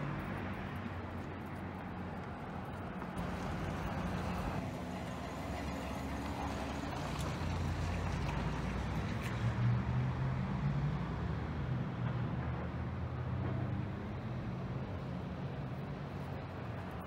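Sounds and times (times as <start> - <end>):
engine humming: 1.9 - 8.6.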